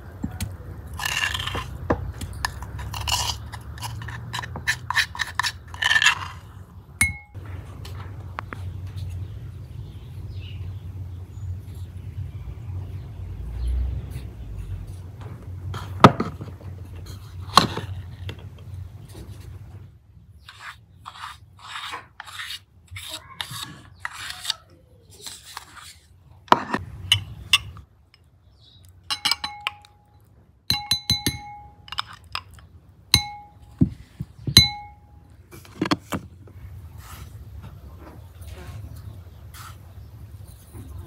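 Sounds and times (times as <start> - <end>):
metal spoon scraping glass bowl: 1.0 - 1.8, 2.4 - 6.4, 29.1 - 29.9
spoon clinking on glass bowl: 29.1 - 30.0, 30.7 - 32.1, 34.6 - 35.0.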